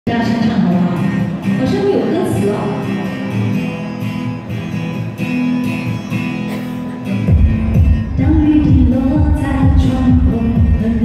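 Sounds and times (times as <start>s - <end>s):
strummed guitar: 0.1s - 11.0s
bass and drums on a steady beat: 7.3s - 11.0s.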